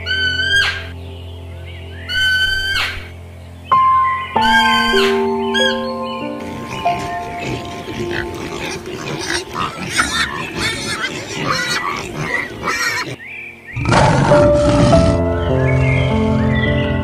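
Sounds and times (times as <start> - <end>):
pigs grunting and squealing: 2.1 - 3.1, 6.4 - 15.3.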